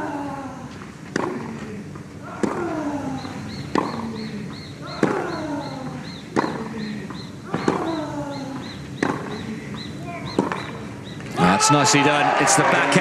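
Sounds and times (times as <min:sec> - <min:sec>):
racket striking tennis ball: 0:01.0 - 0:01.7, 0:02.3 - 0:04.3, 0:04.9 - 0:05.4, 0:06.3 - 0:10.8.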